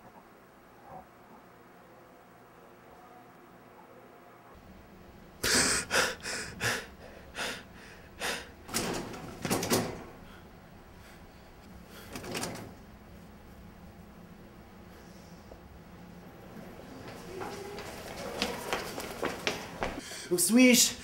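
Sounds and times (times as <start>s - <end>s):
man gasping in panic: 5.4s - 8.6s.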